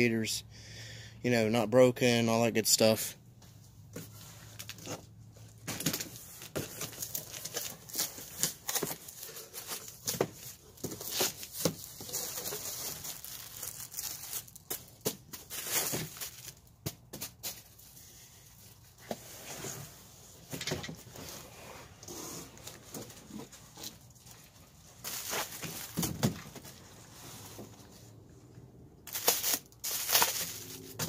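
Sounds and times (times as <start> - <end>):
cardboard flaps tearing and scraping: 5.6 - 16.6, 25.0 - 27.4, 29.1 - 31.0
plastic wrap crinkling: 5.8 - 16.8, 22.6 - 26.8, 29.0 - 31.0.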